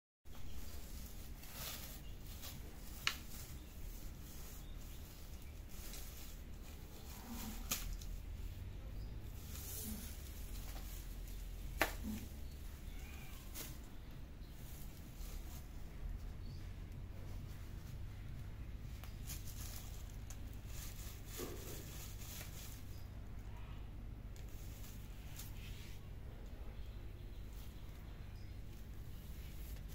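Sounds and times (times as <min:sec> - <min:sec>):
plastic strips crinkling: 0:00.3 - 0:15.9, 0:17.5 - 0:23.5
plastic streamers rustling: 0:00.3 - 0:26.5, 0:27.4 - 0:29.9.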